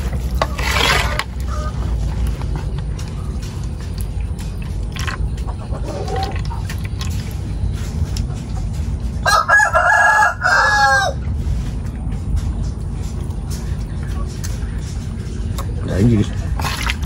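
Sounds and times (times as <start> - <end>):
steady low rumble: 0.0 - 17.0
rooster crowing: 9.2 - 11.2.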